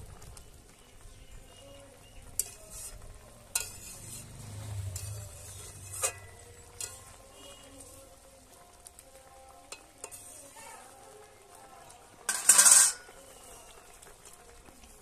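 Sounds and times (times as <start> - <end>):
curry simmering and sizzling: 0.0 - 15.0
metal spatula knocking pan: 12.3 - 13.0.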